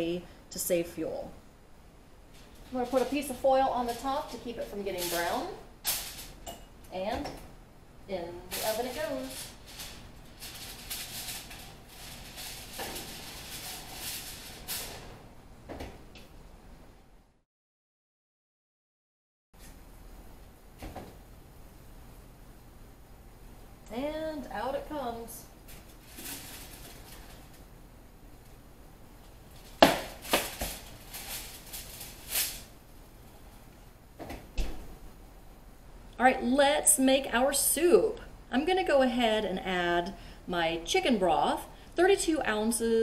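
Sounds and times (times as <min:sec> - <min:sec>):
foil rustling: 0:02.3 - 0:06.4, 0:08.4 - 0:15.2, 0:25.6 - 0:27.7, 0:29.5 - 0:32.8.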